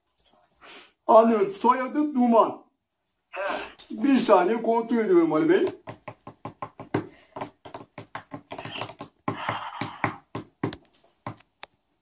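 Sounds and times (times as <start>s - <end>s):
fingertips tapping on tabletop: 5.6s - 11.7s.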